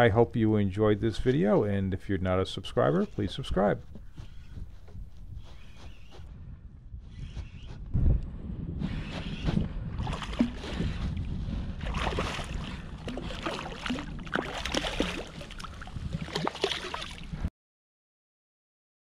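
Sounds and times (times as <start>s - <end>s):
wind rumble on microphone: 2.9s - 17.5s
fish splashing in water: 10.0s - 11.0s, 11.8s - 17.3s.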